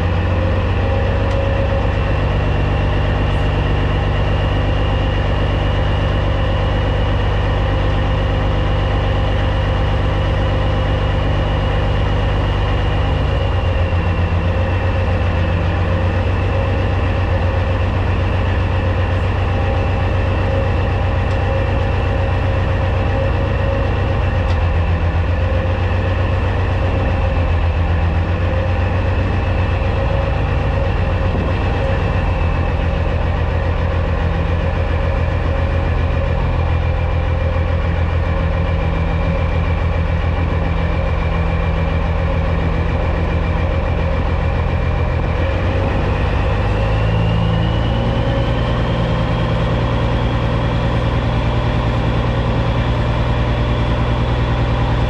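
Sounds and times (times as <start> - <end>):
diesel truck engine idling: 0.0 - 55.0.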